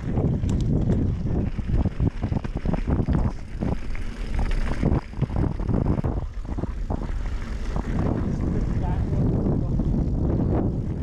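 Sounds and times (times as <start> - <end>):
wind buffeting microphone: 0.0 - 11.0
bike knocks and rattles: 0.1 - 7.1.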